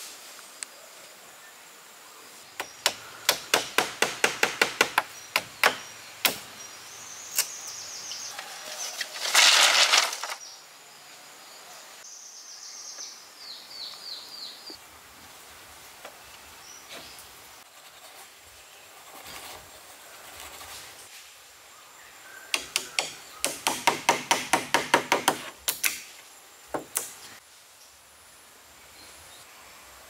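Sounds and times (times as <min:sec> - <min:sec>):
sharp knocks of hard material: 0:22.6 - 0:26.1.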